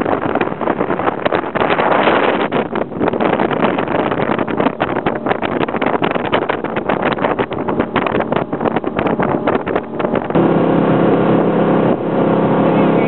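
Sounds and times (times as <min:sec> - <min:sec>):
wind buffeting microphone: 0:00.0 - 0:13.0
boat engine droning faintly: 0:07.5 - 0:13.0.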